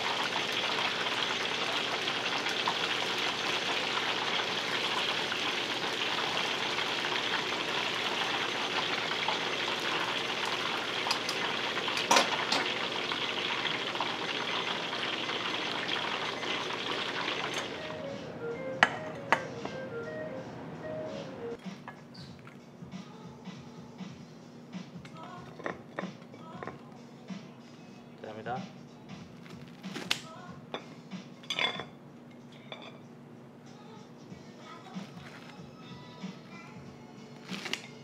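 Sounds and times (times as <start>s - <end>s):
food sizzling in hot oil: 0.0s - 17.9s.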